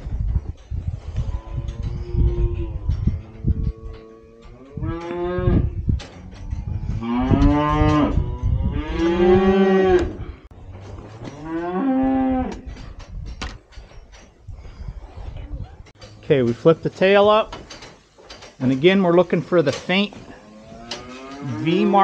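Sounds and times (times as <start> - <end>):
cattle mooing: 20.4 - 22.0.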